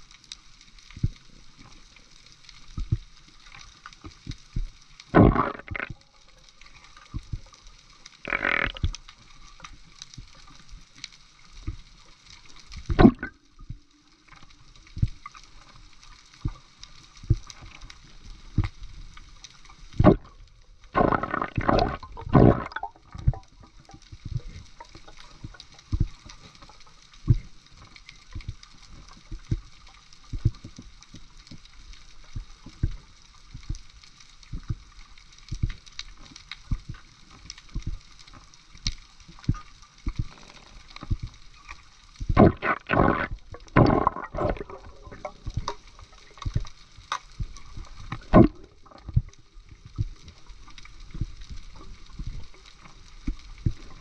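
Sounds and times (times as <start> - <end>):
steady water hiss: 0.0 - 54.0
water gurgling bursts: 4.5 - 7.6, 8.2 - 10.8, 12.7 - 13.9, 19.7 - 27.6, 39.5 - 52.5.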